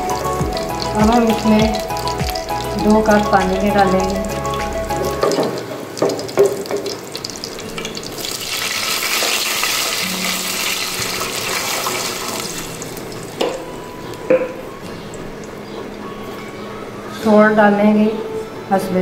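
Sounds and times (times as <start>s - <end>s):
seeds frying in hot oil: 0.0s - 14.2s
loud hissing sizzle: 0.0s - 15.7s.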